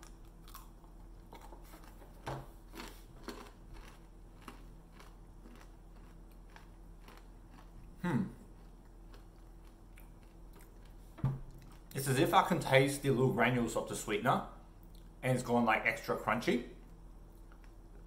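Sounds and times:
crunchy chewing: 0:00.0 - 0:12.0
person making low voice sound: 0:08.0 - 0:08.4.

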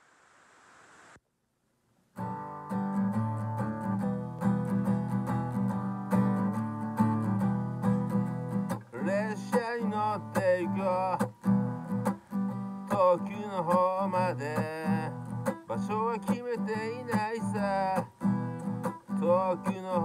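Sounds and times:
acoustic guitar strumming chords: 0:02.2 - 0:20.0
man singing: 0:08.9 - 0:11.5, 0:12.5 - 0:20.0.

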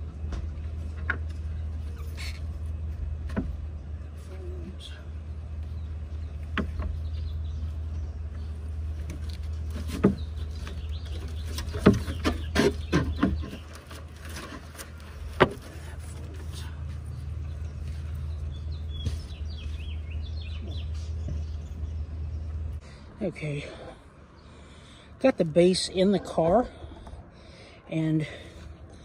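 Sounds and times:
birds chirping faintly: 0:00.0 - 0:29.0
steady low hum: 0:00.0 - 0:29.0
wooden knocks and thumps: 0:03.1 - 0:03.7, 0:06.4 - 0:07.2, 0:09.0 - 0:15.8.

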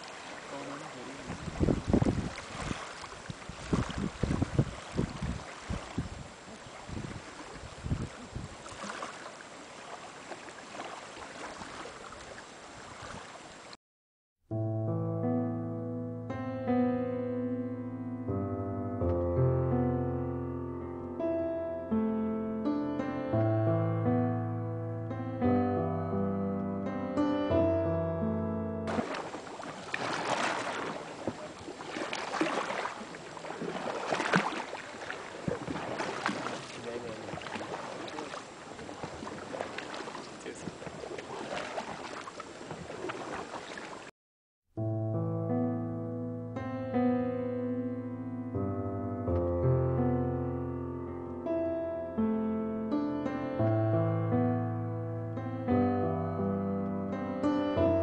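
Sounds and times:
paddles splashing in water: 0:00.0 - 0:13.8, 0:28.9 - 0:44.1
wind buffeting microphone: 0:01.1 - 0:08.9, 0:32.5 - 0:43.5
waves lapping on pebble shore: 0:28.9 - 0:44.1.

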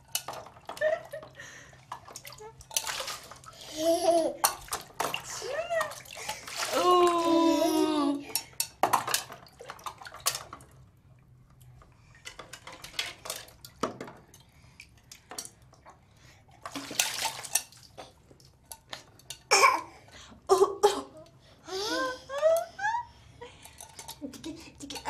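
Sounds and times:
water splashing and pouring: 0:00.0 - 0:07.5, 0:15.8 - 0:18.0
bath things knocking: 0:04.3 - 0:07.4, 0:08.3 - 0:10.7.

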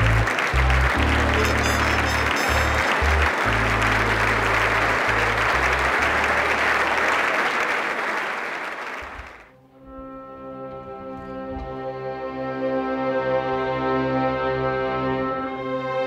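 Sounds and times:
audience applauding: 0:00.0 - 0:09.5.

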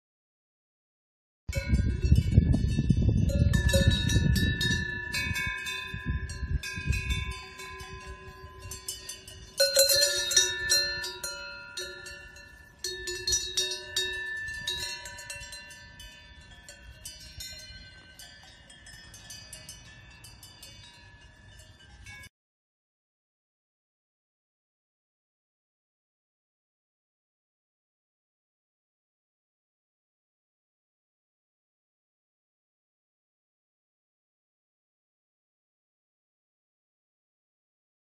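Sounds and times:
cowbells clanking and ringing: 0:01.5 - 0:22.3.

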